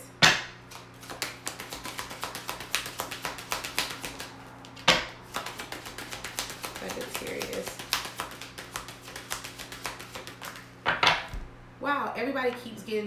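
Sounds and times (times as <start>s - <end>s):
cards being shuffled: 0.7s - 11.5s.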